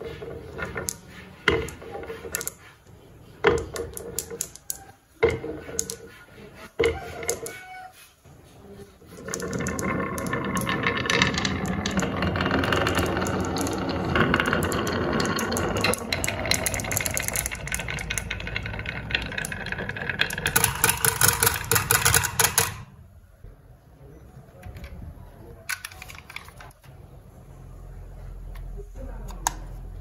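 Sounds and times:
marbles rolling on wooden track: 0.0s - 6.1s, 6.8s - 7.7s, 8.9s - 23.0s
marbles clattering into plastic truck: 0.4s - 2.6s, 3.4s - 6.0s, 6.8s - 7.5s, 9.1s - 22.9s.

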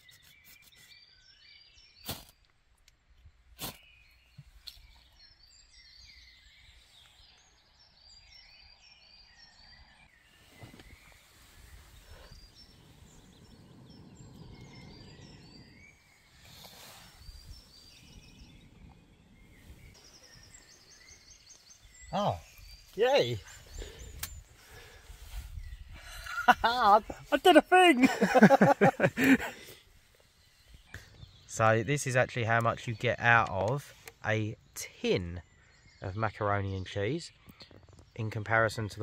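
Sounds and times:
small birds chirping: 0.0s - 39.0s
blowing on tinder: 10.6s - 20.0s.

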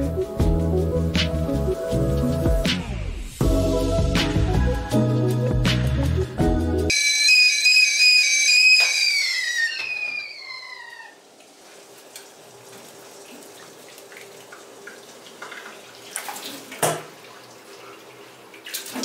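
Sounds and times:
kettle whistling: 6.9s - 11.2s.

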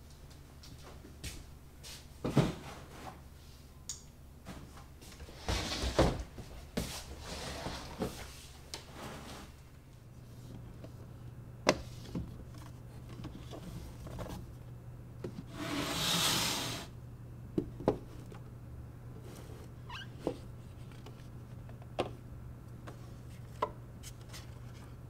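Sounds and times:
crate scraping across table: 15.5s - 16.9s.

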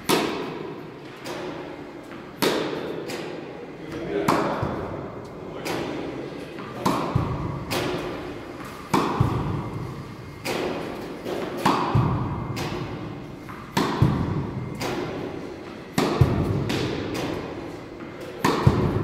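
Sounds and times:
tennis balls bouncing on court: 0.0s - 3.4s, 4.1s - 19.0s
racquet striking tennis balls: 0.0s - 19.0s.

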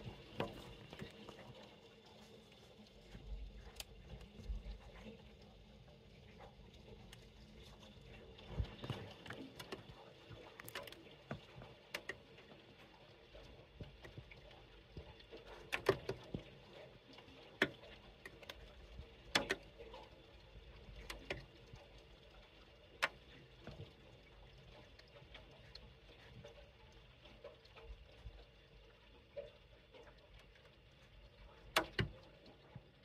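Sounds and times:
raindrops tapping a surface: 8.4s - 12.3s, 13.8s - 16.5s, 17.1s - 18.7s, 19.3s - 20.0s, 31.7s - 32.3s.

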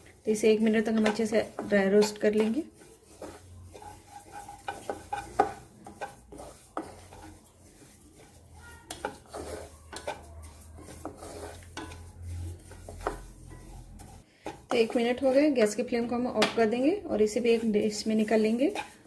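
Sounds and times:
spatula scraping a pan: 0.0s - 19.0s.

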